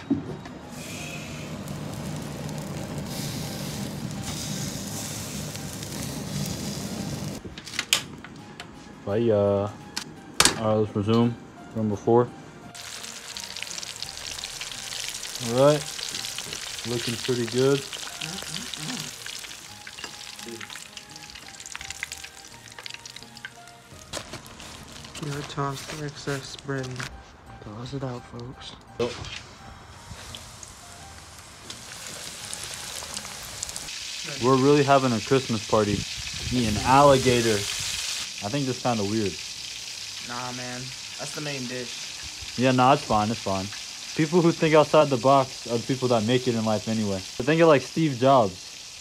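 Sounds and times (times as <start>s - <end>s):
meat sizzling on grill: 0.6s - 7.4s, 12.8s - 26.5s, 30.1s - 49.0s
food deep-frying in oil: 0.8s - 7.4s, 12.8s - 26.2s, 30.2s - 49.0s.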